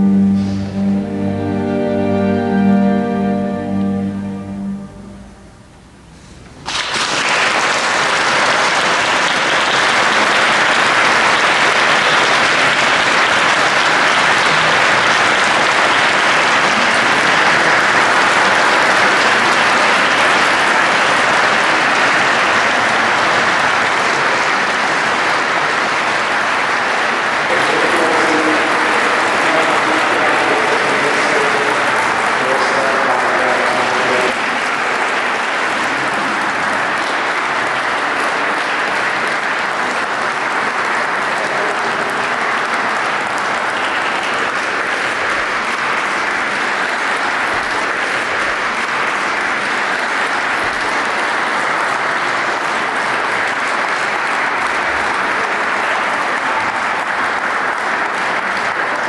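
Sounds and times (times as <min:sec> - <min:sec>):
audience applauding: 0:06.6 - 0:59.0
voices: 0:27.5 - 0:34.4.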